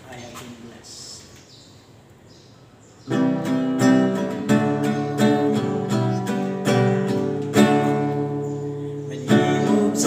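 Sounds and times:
acoustic guitar strumming: 0:03.1 - 0:10.0.

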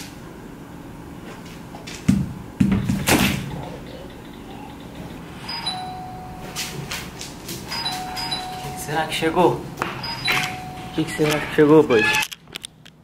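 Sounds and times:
electronic doorbell chime: 0:05.4 - 0:06.7, 0:07.7 - 0:09.3, 0:10.0 - 0:11.3.

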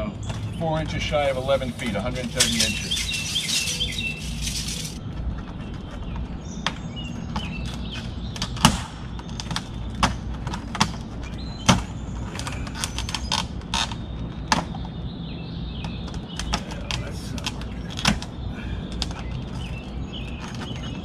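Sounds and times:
clicks and taps on vinyl siding: 0:05.2 - 0:15.0, 0:15.8 - 0:21.0.

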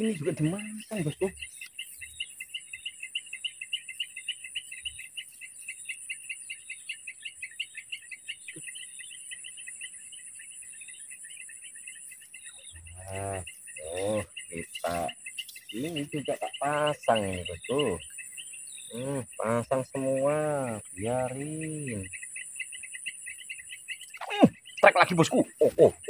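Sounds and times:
person's voice: 0:00.0 - 0:01.3, 0:13.0 - 0:15.1, 0:15.8 - 0:18.0, 0:19.0 - 0:22.1, 0:24.2 - 0:26.0
crickets chirping: 0:00.0 - 0:26.0
high-pitched insect trill: 0:00.0 - 0:26.0.

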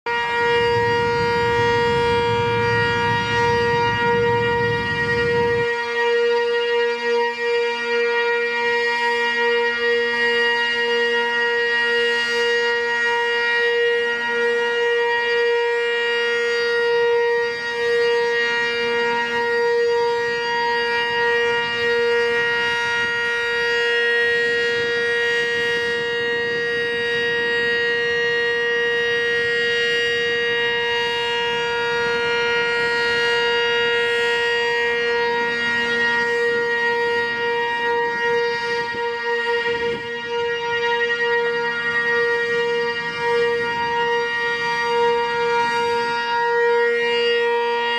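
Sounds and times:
two-tone warning siren: 0:00.0 - 0:47.9.

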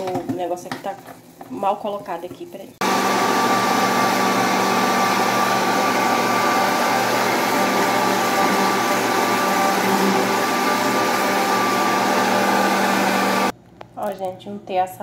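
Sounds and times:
blender motor whining: 0:02.8 - 0:13.5.

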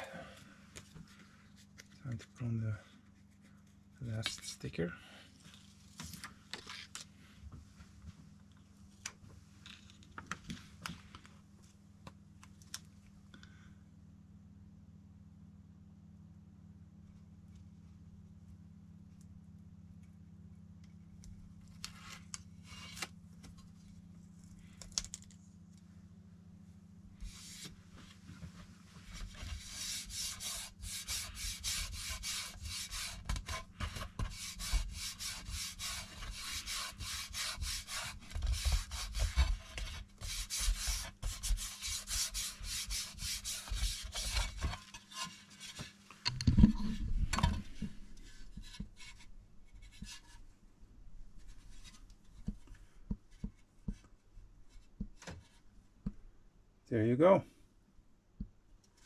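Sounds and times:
sticker being rubbed by hand: 0:27.2 - 0:27.8, 0:29.0 - 0:44.8.

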